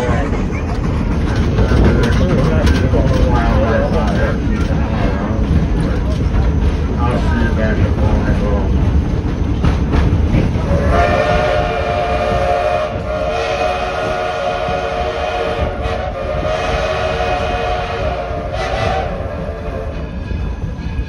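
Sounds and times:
moving train rumble: 0.0 - 21.0
steam whistle blast: 10.8 - 20.0.

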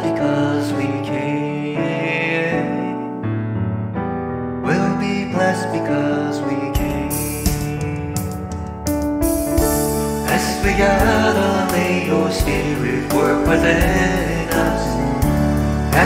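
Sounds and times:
worship song singing: 0.0 - 3.1, 10.1 - 16.0
instrumental accompaniment: 2.7 - 16.0.

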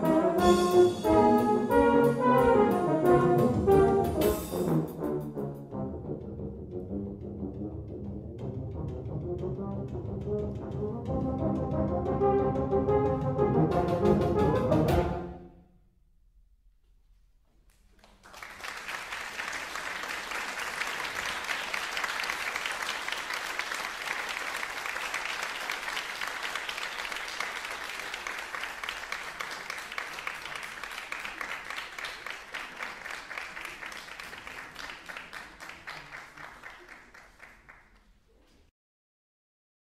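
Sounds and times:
audience applauding: 17.7 - 38.6.

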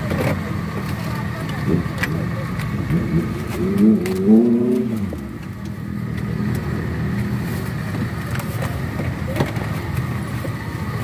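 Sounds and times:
street background noise: 0.0 - 11.0
vehicle engine passing by: 1.6 - 8.0.

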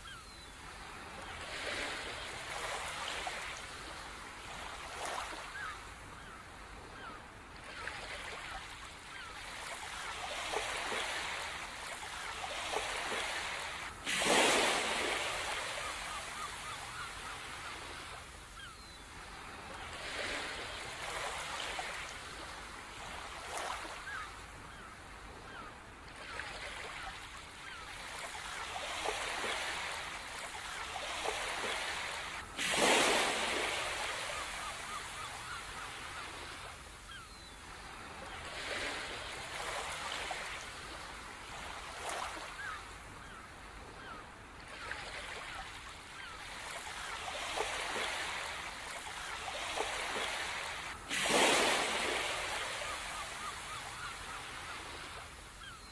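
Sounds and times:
sea waves washing onto shore: 7.7 - 24.3, 27.6 - 37.2, 46.2 - 55.5.

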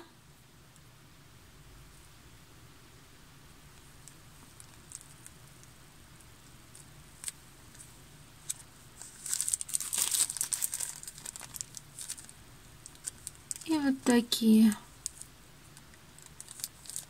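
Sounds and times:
packaging crinkling: 8.4 - 14.2, 15.0 - 17.0.

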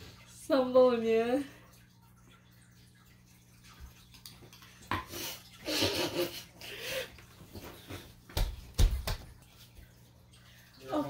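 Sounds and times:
stifled laughter: 5.6 - 7.2.

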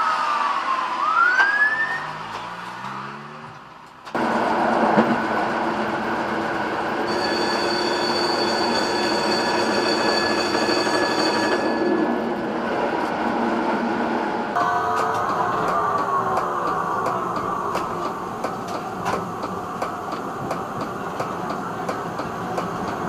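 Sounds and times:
tram wheels rolling on rail: 2.1 - 23.0
high steady whine: 14.6 - 22.3.

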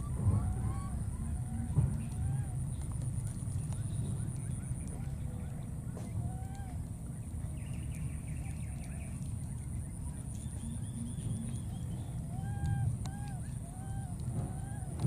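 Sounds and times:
baby monkeys whimpering coo calls: 0.0 - 3.4, 10.6 - 15.0.

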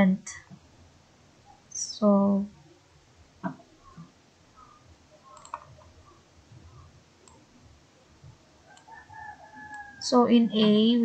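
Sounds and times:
computer mouse clicks: 3.9 - 5.9, 6.7 - 7.5, 8.7 - 8.9, 9.6 - 9.9.

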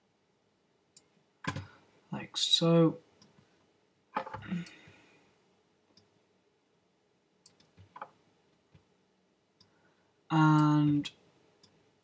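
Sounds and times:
computer mouse clicks: 7.4 - 8.2.

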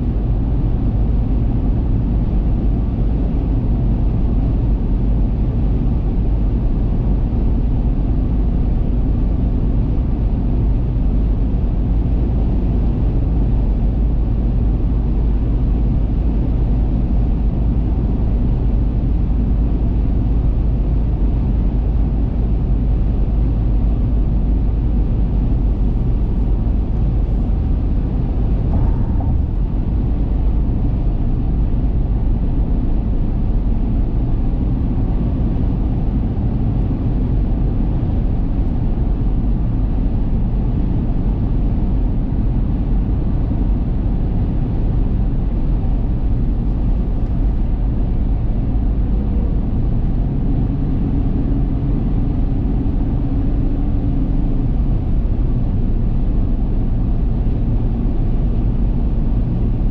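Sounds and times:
car driving at highway speed: 0.0 - 59.9.

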